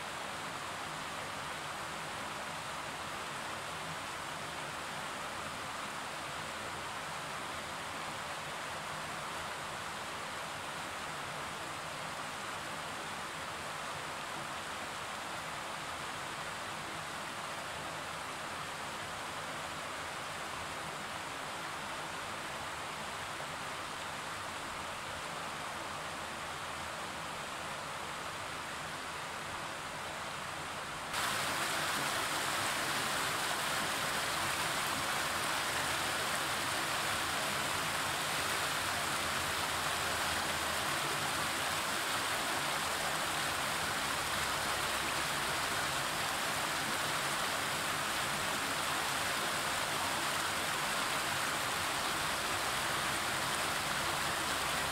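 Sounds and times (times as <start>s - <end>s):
river rushing over stones: 0.0s - 54.9s.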